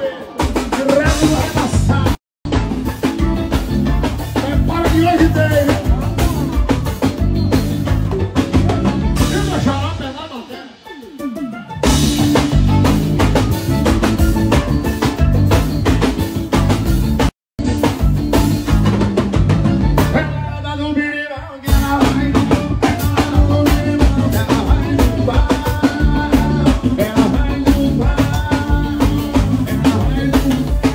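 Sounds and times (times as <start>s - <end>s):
live band playing: 0.0s - 30.9s
person singing into microphone: 20.2s - 30.9s.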